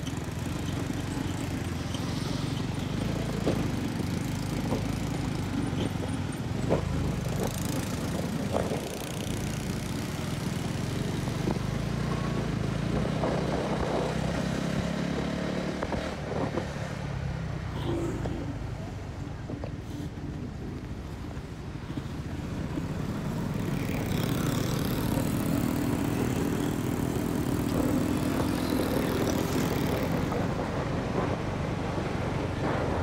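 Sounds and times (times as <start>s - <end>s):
motorcycle engine running: 22.8s - 30.7s.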